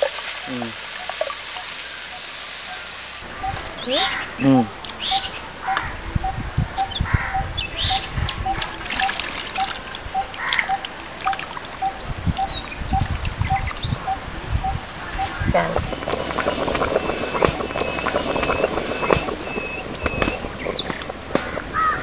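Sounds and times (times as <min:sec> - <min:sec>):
liquid pouring and splashing: 0:00.0 - 0:02.6, 0:08.7 - 0:11.8, 0:15.6 - 0:22.0
hissing burst: 0:15.5 - 0:21.8
fish frying in hot oil: 0:15.9 - 0:21.2.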